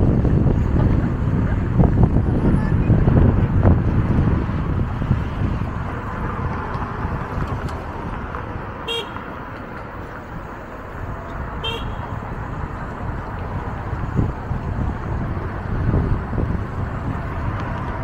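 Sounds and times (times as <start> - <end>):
street traffic rumble: 0.0 - 18.0
short horn beeps: 8.9 - 9.2, 11.6 - 12.1.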